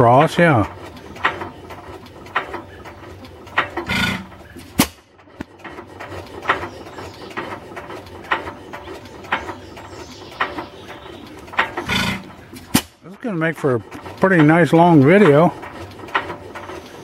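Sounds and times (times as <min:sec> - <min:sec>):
stationary engine popping slowly: 0:00.0 - 0:17.0.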